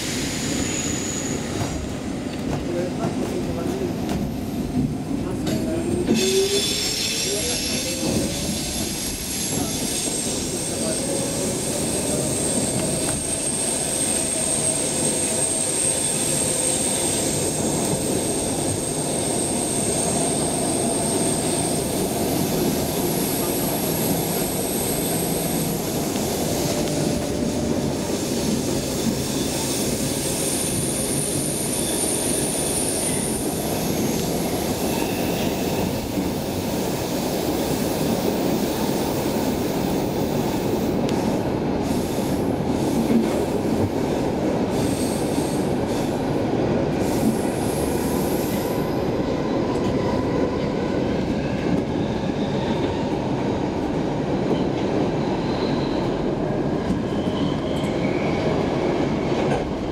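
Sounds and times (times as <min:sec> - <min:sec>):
train wheels rumbling on track: 0:00.0 - 0:59.9
high-pitched wheel squeal: 0:06.1 - 0:21.9.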